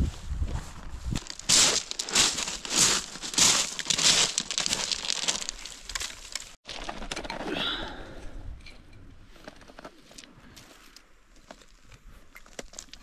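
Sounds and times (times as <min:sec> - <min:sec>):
dry crunching and crinkling: 0:01.2 - 0:07.4.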